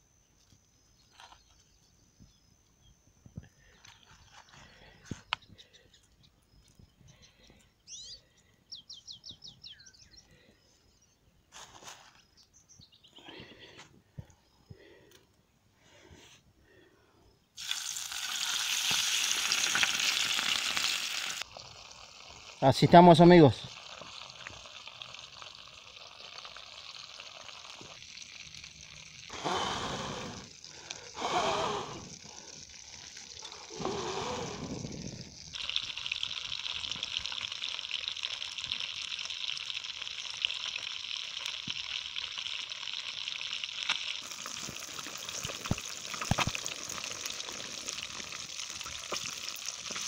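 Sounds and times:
fish frying in hot oil: 17.6 - 29.3, 32.1 - 33.8, 34.8 - 50.0
faint hiss: 17.6 - 37.2.

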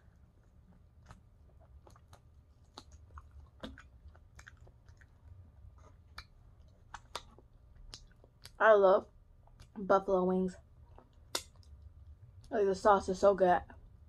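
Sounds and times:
person chewing with mouth clicks: 0.4 - 8.6, 9.4 - 9.8, 10.8 - 12.2.

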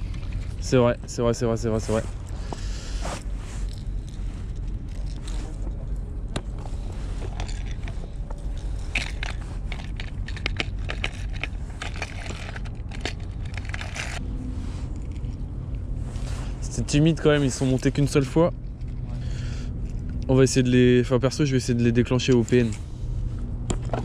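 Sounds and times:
small clicks rattles and scrapes: 0.0 - 1.0, 3.4 - 14.2, 14.8 - 20.4.

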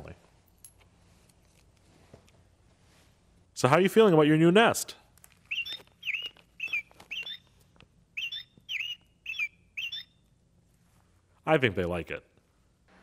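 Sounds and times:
toy bird chirps: 5.5 - 7.5, 8.2 - 10.2.

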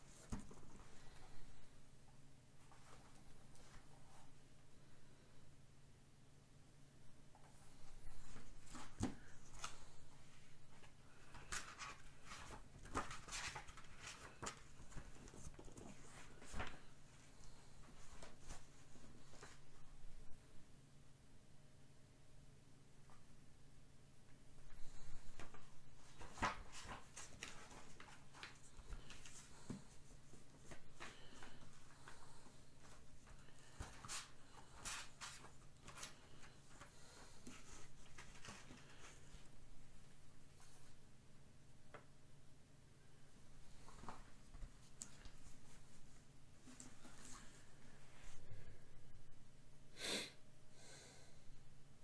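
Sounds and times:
paper rustling: 8.0 - 19.8, 24.6 - 39.5.

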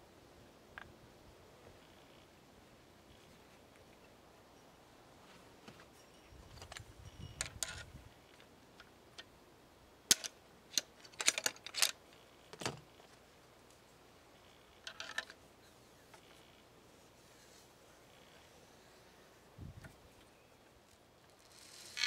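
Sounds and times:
shotgun loading clicks: 10.1 - 12.0.

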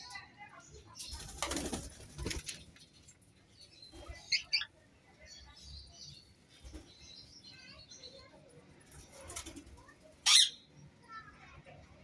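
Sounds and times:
parakeet wings fluttering: 1.1 - 2.8
parakeet sharp calls: 10.2 - 10.6.

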